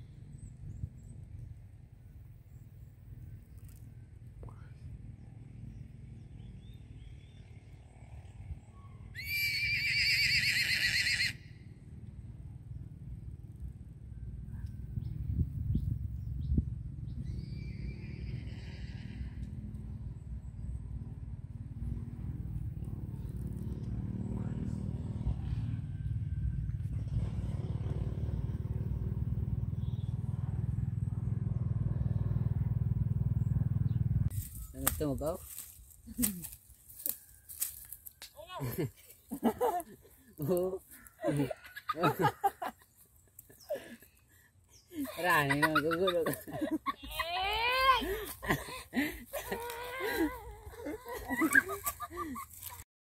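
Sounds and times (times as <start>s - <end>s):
horse whinnying: 9.2s - 11.5s, 17.6s - 19.4s
low rumble: 11.6s - 34.8s
engine running: 19.0s - 34.7s.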